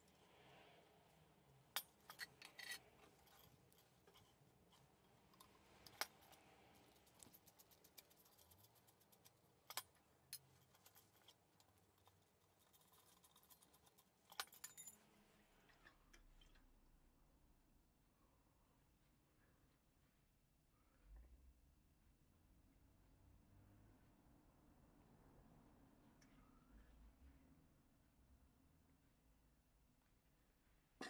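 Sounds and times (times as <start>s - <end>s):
screwdriver clicking on metal: 1.8s - 9.9s.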